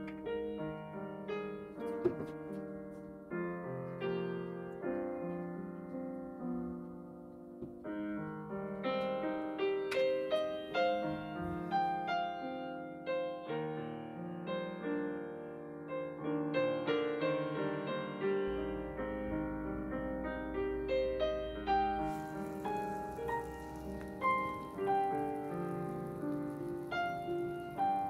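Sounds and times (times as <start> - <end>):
gentle piano music: 0.0 - 28.0.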